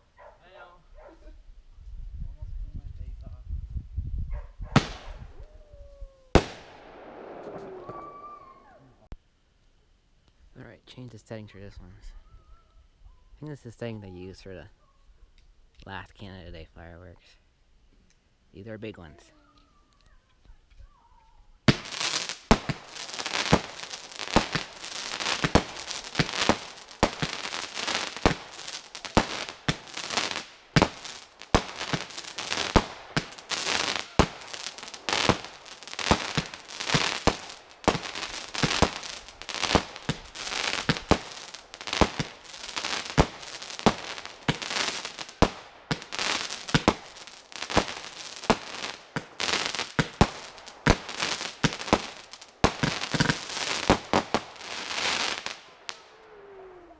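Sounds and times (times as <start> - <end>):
fireworks bangs: 4.6 - 5.4, 6.3 - 9.2, 21.6 - 56.6
fireworks crackling: 4.6 - 9.2, 18.5 - 56.2.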